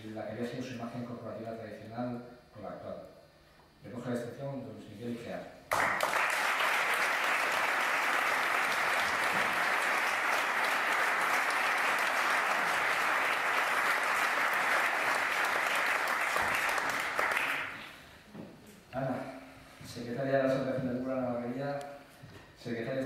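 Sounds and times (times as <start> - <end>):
audience applauding: 5.7 - 18.0.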